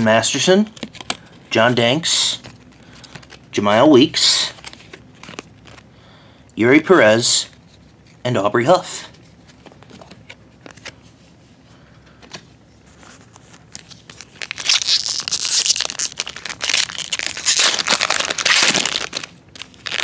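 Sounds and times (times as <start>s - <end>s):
foil wrapper crackling and tearing: 13.8s - 20.0s.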